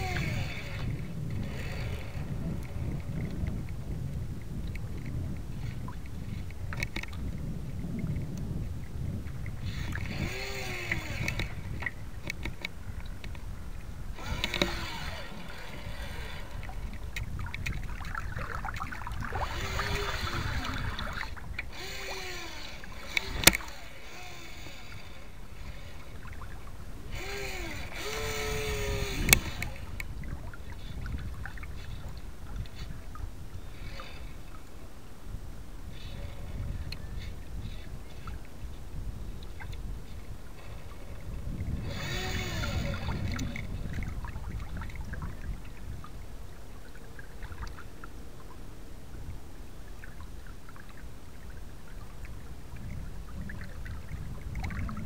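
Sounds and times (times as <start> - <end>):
water rushing along boat hull: 0.0 - 55.0
sharp clicks: 9.9 - 13.4, 14.2 - 15.8, 21.6 - 25.0, 27.2 - 30.1
whines rising and falling: 14.1 - 30.0.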